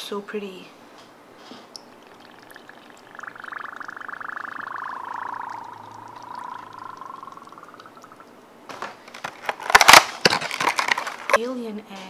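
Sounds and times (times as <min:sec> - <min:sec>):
air bubbling under water: 0:01.8 - 0:08.3.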